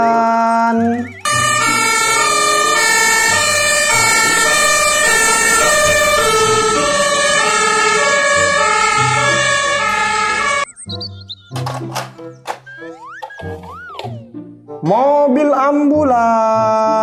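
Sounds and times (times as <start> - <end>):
fire engine two-tone siren: 0.8 - 10.8.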